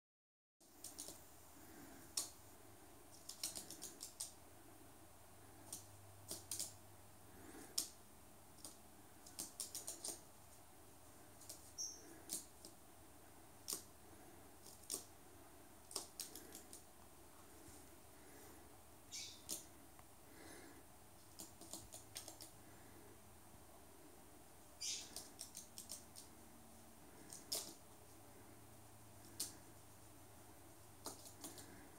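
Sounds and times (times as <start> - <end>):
bird claws clicking on hard floor: 3.2 - 4.3, 5.7 - 6.8, 8.6 - 10.2, 14.6 - 15.1, 15.9 - 16.8, 21.3 - 22.5, 27.3 - 27.8, 31.0 - 31.7.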